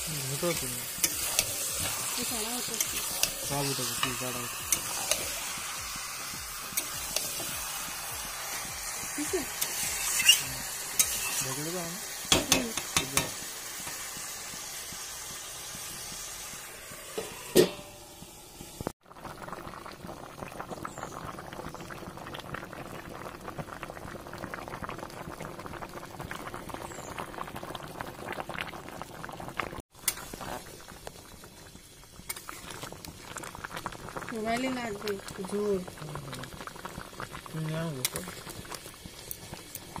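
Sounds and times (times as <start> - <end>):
curry boiling and bubbling: 0.0 - 40.0
meat sizzling in a pan: 0.0 - 40.0
metal spatula scraping a pan: 1.0 - 5.4, 9.6 - 11.6.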